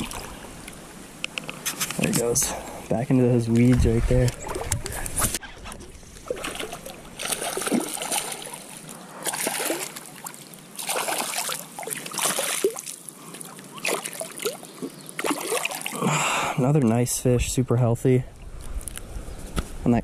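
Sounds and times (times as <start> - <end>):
water splashing at the bank: 0.0 - 1.8, 3.5 - 16.2
water gurgling: 5.6 - 16.4.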